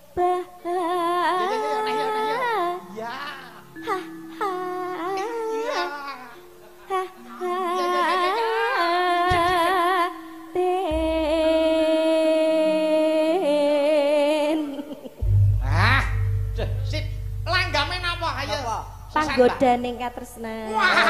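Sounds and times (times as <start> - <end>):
woman singing with vibrato: 0.0 - 3.0, 3.8 - 6.1, 6.9 - 16.3
steady low tone: 10.8 - 12.2, 15.2 - 20.7
deep low thuds: 10.9 - 11.9, 15.2 - 20.4.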